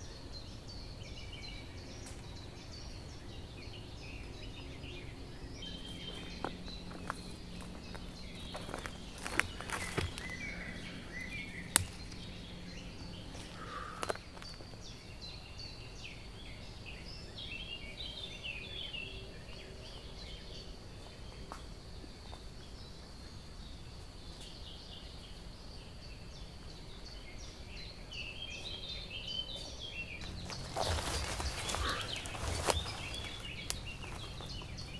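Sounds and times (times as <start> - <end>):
small birds chirping and trilling: 0.0 - 34.9
sharp snaps: 11.2 - 12.4, 31.8 - 34.3.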